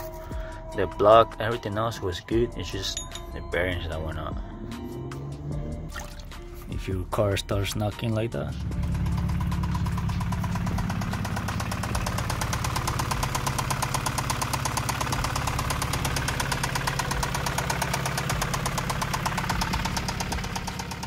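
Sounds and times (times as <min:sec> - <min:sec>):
car engine idling with rod knock: 0:08.6 - 0:21.0.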